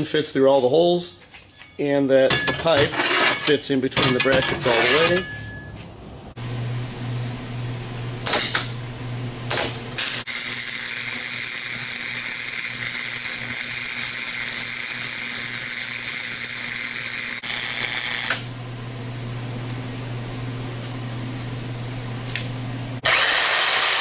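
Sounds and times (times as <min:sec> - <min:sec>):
welder arc on steel: 0:09.5 - 0:18.5, 0:23.0 - 0:24.0.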